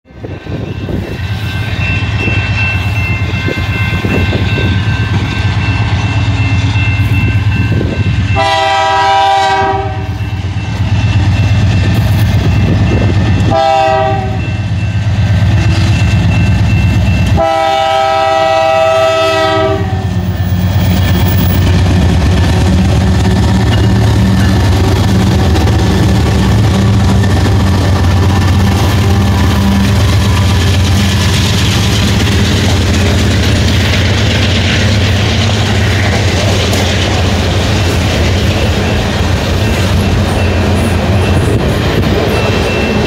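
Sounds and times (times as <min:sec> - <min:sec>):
crossing signal bell ringing: 0:00.1 - 0:21.8, 0:23.6 - 0:36.4, 0:37.2 - 0:43.0
diesel locomotive rumble: 0:00.1 - 0:43.0
locomotive horn blasts: 0:08.3 - 0:10.3, 0:13.4 - 0:14.6, 0:17.3 - 0:20.2, 0:28.2 - 0:30.7.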